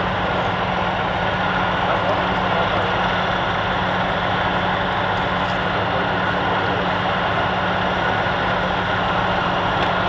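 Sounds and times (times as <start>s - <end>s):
heavy machinery engine running: 0.0s - 10.0s.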